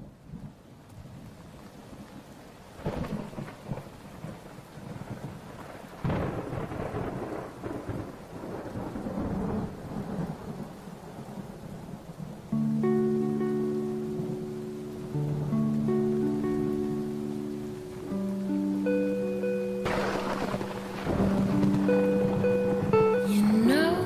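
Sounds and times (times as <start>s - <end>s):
steady rain: 0.0s - 24.0s
thunder cracks rumbling: 2.8s - 12.4s, 19.8s - 23.7s.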